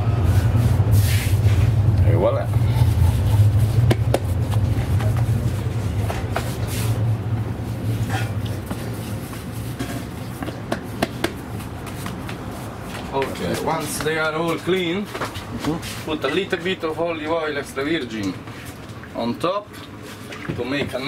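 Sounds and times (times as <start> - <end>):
steady low hum: 0.0 - 17.2
hands patting dough: 3.1 - 6.9, 8.6 - 14.2.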